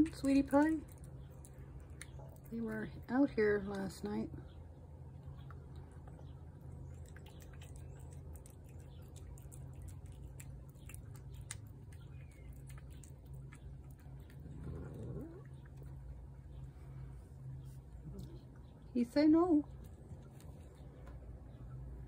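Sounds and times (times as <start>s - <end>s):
cat chewing wetly: 5.5s - 16.4s
cat low vocalization: 6.9s - 16.1s.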